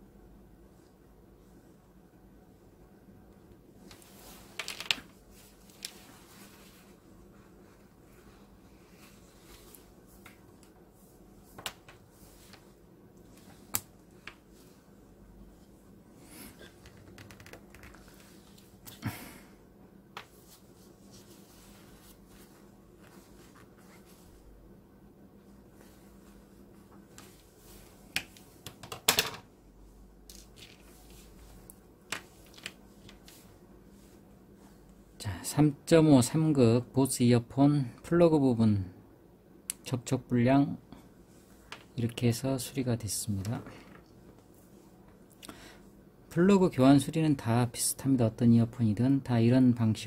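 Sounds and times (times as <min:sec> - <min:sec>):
paper tissue rustling: 0:04.0 - 0:10.2, 0:20.3 - 0:24.5.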